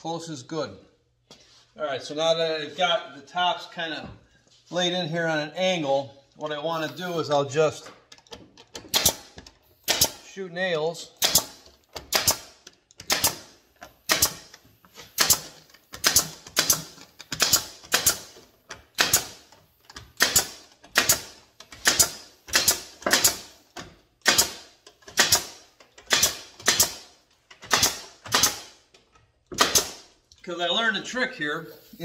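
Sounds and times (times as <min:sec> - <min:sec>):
pneumatic nailer shots: 0:08.7 - 0:10.3, 0:11.1 - 0:28.9, 0:29.5 - 0:30.2.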